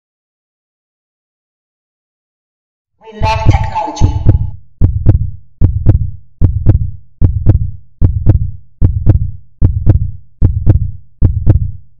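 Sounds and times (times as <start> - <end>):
heartbeat thumps: 3.2 - 11.9.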